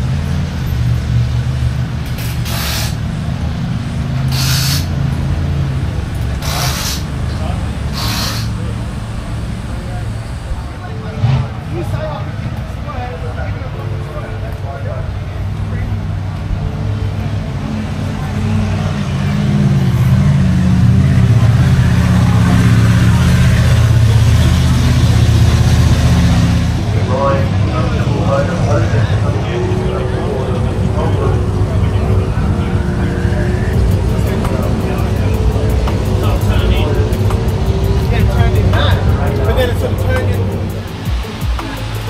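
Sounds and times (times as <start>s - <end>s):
engine running: 0.0s - 42.0s
machinery humming: 0.0s - 42.0s
short hisses: 2.2s - 3.0s, 4.3s - 5.0s, 6.4s - 7.1s, 7.9s - 8.7s.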